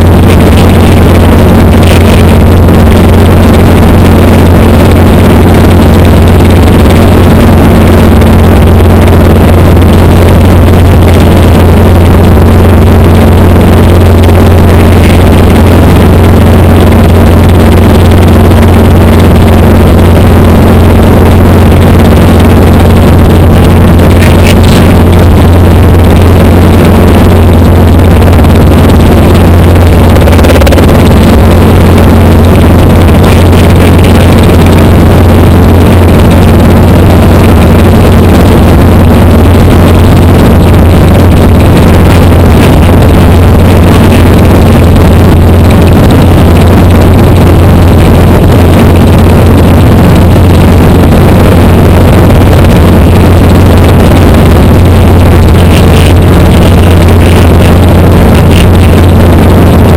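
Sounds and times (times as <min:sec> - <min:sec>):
helicopter engine and rotor drone: 0:00.0 - 0:59.9
wind rush: 0:12.3 - 0:59.9.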